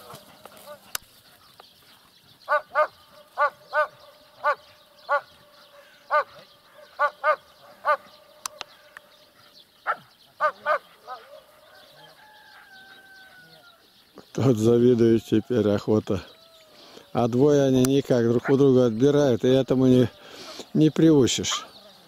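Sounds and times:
dog yelping barks: 0:02.5 - 0:05.3, 0:06.1 - 0:08.0.

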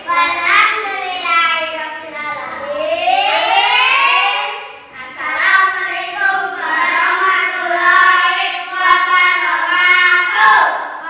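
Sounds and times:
children singing together: 0:00.0 - 0:11.0.

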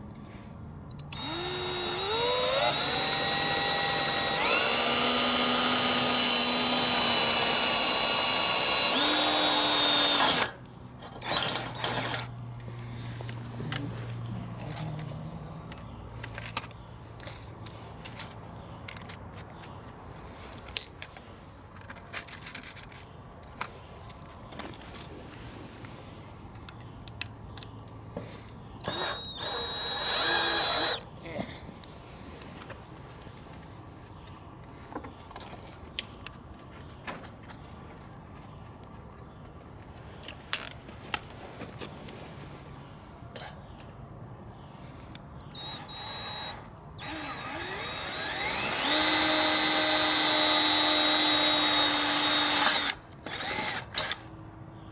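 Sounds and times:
low background noise: 0:00.0 - 0:54.9
drill chuck turned by hand: 0:00.9 - 0:12.4, 0:28.8 - 0:31.0, 0:45.2 - 0:54.2
screws and bits clinking: 0:10.1 - 0:12.3.

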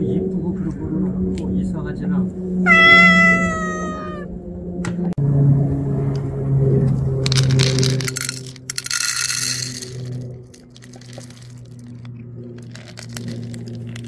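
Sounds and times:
kibble rattling into bowl: 0:07.3 - 0:14.0.

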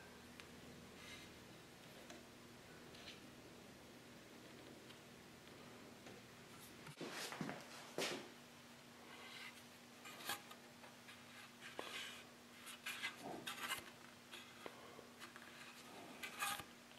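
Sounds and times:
faint steady hum: 0:00.0 - 0:16.9
rubbing and scratching: 0:09.2 - 0:14.6, 0:15.2 - 0:16.7.

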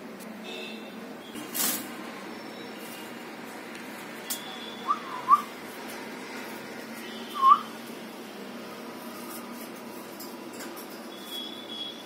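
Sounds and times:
parakeet whistling: 0:04.4 - 0:05.5, 0:07.2 - 0:07.7.

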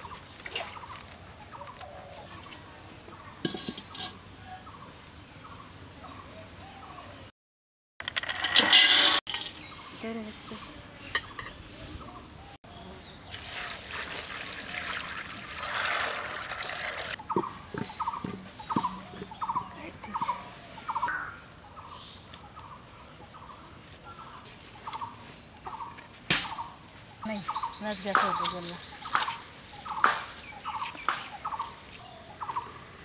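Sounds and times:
small birds chirping: 0:09.3 - 0:13.5, 0:17.1 - 0:33.0
water poured into wok: 0:13.3 - 0:17.2.

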